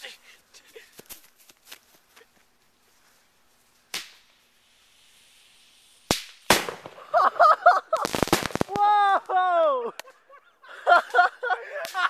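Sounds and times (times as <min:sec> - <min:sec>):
soft hiss: 0:00.0 - 0:07.1
rapid firework crackling: 0:03.8 - 0:07.2, 0:07.8 - 0:09.0
loud firework bangs: 0:06.1 - 0:07.2, 0:07.9 - 0:08.9.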